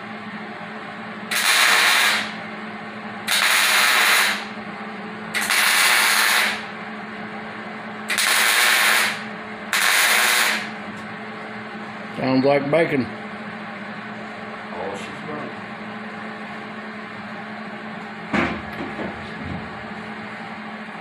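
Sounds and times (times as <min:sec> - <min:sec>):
welder hum: 0:01.2 - 0:02.5, 0:03.2 - 0:04.6, 0:05.3 - 0:06.7, 0:08.0 - 0:11.2
welding crackling sizzle: 0:01.3 - 0:02.4, 0:03.3 - 0:04.5, 0:05.4 - 0:06.7, 0:08.1 - 0:10.8.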